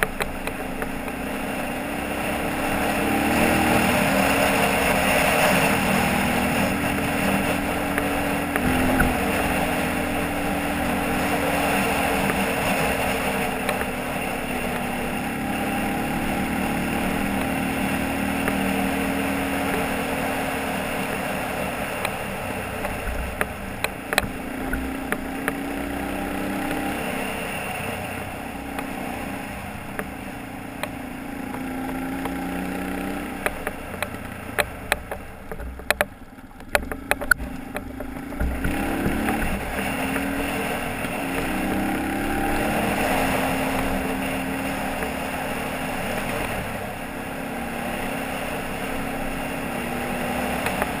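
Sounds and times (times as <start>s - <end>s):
sharp clicks and knocks: 0.0s - 1.2s, 6.6s - 9.6s, 22.8s - 25.6s, 33.4s - 40.3s
motorcycle engine revving: 0.0s - 51.0s.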